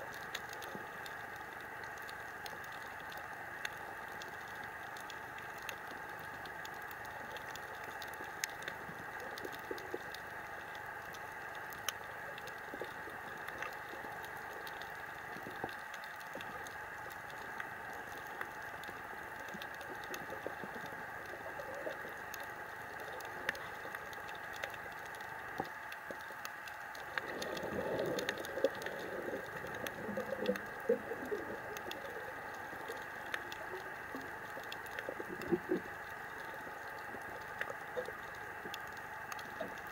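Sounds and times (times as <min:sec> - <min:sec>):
sharp clicks and crackles: 0:00.0 - 0:39.9
underwater bubbling: 0:00.0 - 0:39.9
underwater hiss: 0:27.0 - 0:39.7.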